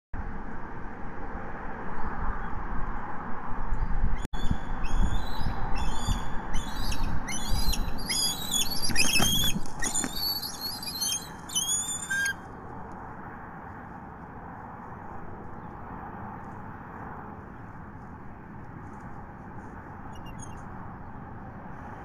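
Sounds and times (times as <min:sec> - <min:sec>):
eagles piping chatter: 0:04.8 - 0:12.4.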